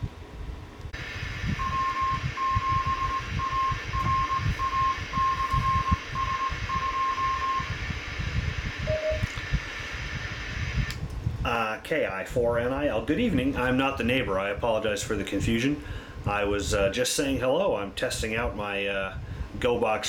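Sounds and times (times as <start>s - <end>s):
radio static hiss: 1.0s - 11.0s
morse code beeps: 1.6s - 7.8s, 8.9s - 9.3s
short low beep: 1.6s - 7.8s, 8.8s - 9.3s.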